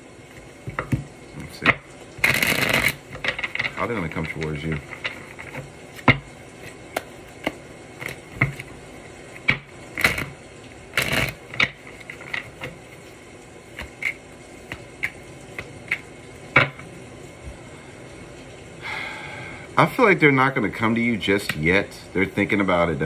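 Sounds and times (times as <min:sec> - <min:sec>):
cards sliding rustle: 0:02.2 - 0:08.8, 0:11.0 - 0:16.1
cards snapping and tapping: 0:06.9 - 0:08.7, 0:13.7 - 0:16.8.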